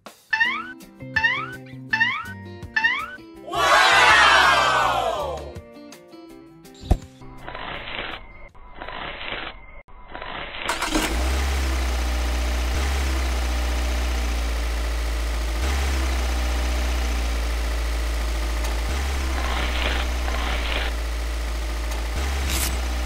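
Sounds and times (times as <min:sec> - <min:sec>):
engine humming: 0:10.7 - 0:23.0.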